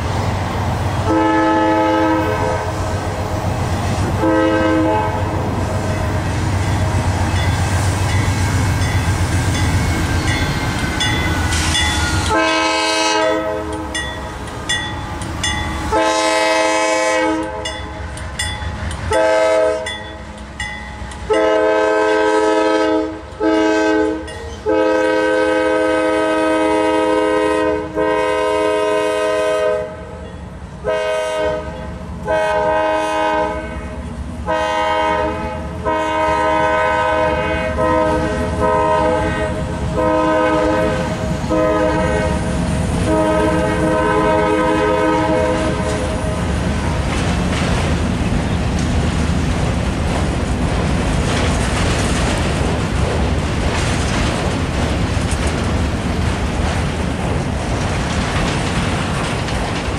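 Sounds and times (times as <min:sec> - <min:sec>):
passing train rumble: 0:00.0 - 0:59.9
locomotive air horn blasts: 0:01.0 - 0:02.9, 0:04.2 - 0:05.4, 0:11.6 - 0:14.0, 0:15.9 - 0:17.7, 0:19.1 - 0:19.9, 0:21.3 - 0:30.2, 0:30.8 - 0:46.4.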